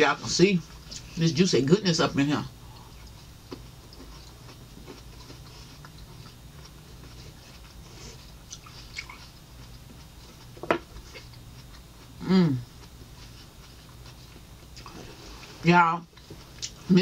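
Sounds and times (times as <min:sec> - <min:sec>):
steady low hum: 0:00.0 - 0:17.0
chewing fruit: 0:00.2 - 0:17.0.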